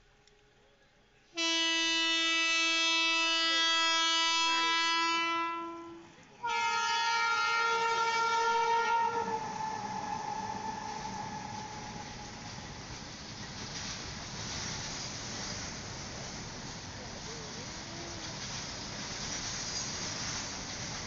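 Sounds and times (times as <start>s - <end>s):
locomotive air horn blasts: 1.3s - 12.5s
rumble of wagons rolling past: 8.4s - 21.0s.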